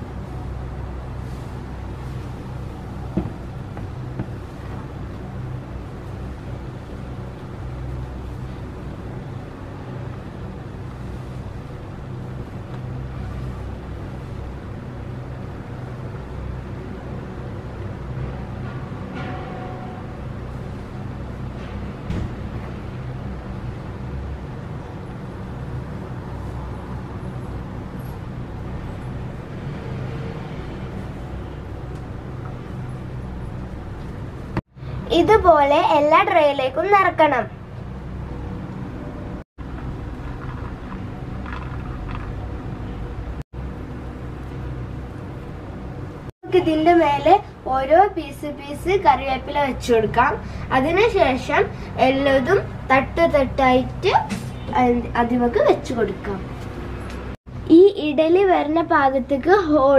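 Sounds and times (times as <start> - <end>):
low mechanical hum and rumble: 0.0 - 59.9
low background rumble: 31.0 - 54.1.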